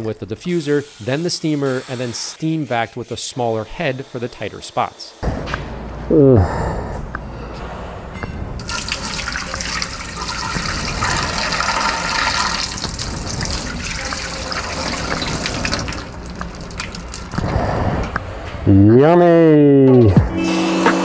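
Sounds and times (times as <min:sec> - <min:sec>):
water splashing into steel sink: 0:08.6 - 0:17.4.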